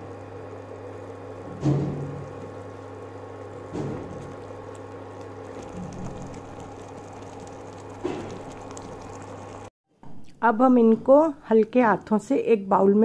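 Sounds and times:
electrical hum: 0:00.0 - 0:09.7
sugar syrup bubbling and crackling: 0:00.0 - 0:09.7.

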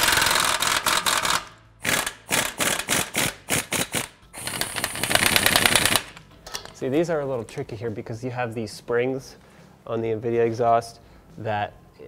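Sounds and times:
pneumatic impact wrench rattling: 0:00.0 - 0:06.2.

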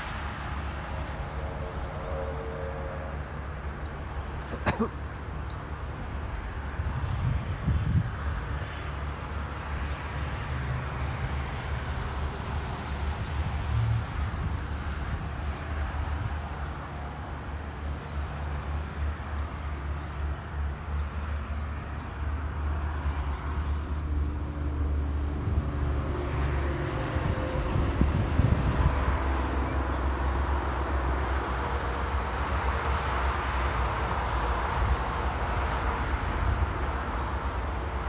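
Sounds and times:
distant road traffic hiss: 0:00.0 - 0:38.0
wind buffeting microphone: 0:05.9 - 0:09.4, 0:10.3 - 0:22.9, 0:23.5 - 0:32.8.

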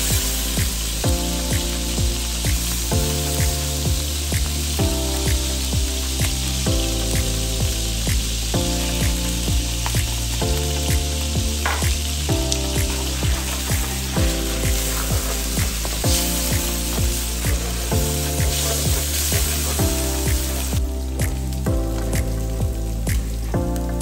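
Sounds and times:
garlic sizzling in oil: 0:00.0 - 0:23.5
music with a steady beat: 0:00.0 - 0:24.0
spatula stirring in a wok: 0:12.9 - 0:19.8.

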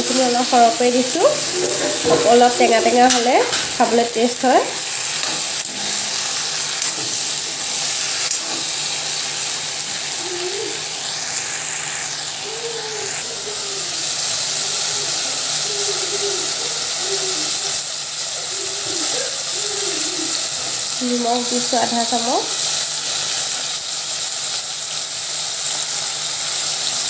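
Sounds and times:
vegetables sizzling in a pan: 0:00.0 - 0:27.0.

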